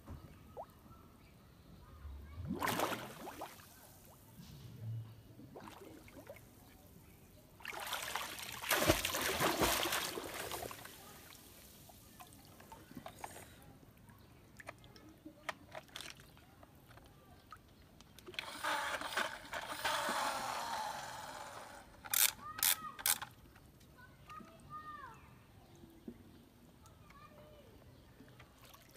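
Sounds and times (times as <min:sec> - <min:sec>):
water splashing: 0:02.4 - 0:04.2, 0:07.6 - 0:12.7.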